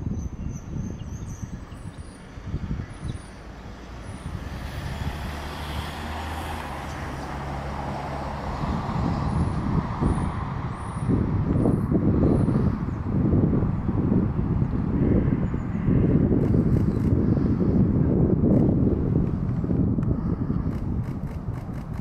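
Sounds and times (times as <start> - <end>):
wind rumbling on microphone: 0.0 - 22.0
vehicle passing on a road: 1.5 - 22.0.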